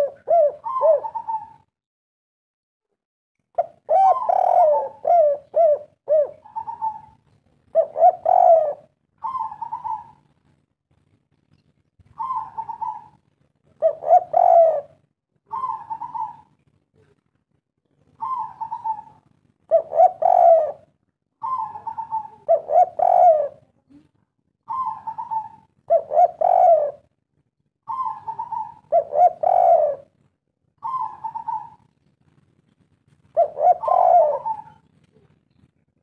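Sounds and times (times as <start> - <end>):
dove cooing: 0.0 - 1.7, 3.6 - 10.3, 12.1 - 17.2, 18.1 - 23.7, 24.6 - 27.1, 27.8 - 30.2, 30.8 - 31.9, 33.2 - 35.4.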